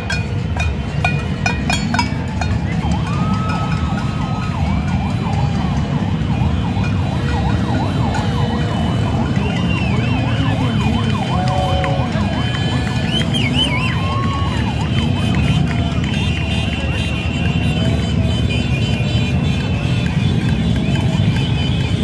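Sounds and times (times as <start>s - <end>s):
crowd din: 0.0s - 22.0s
siren-like noisemaker tones: 2.0s - 19.0s
whistles blowing: 9.4s - 10.3s, 12.7s - 14.3s.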